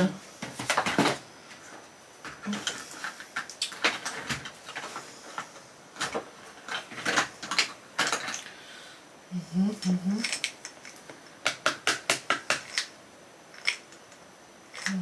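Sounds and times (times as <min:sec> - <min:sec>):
person humming: 0:09.3 - 0:10.3.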